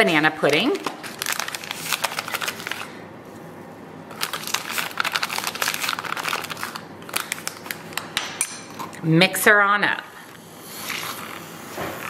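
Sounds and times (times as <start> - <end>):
paper pouch crinkling: 0.4 - 3.0, 4.1 - 8.2.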